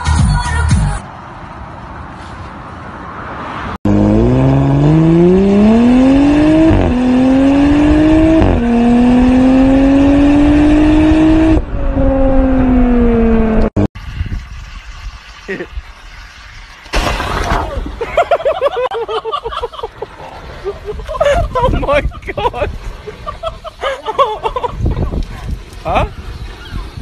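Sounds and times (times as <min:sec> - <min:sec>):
car engine accelerating hard: 0:03.8 - 0:13.8.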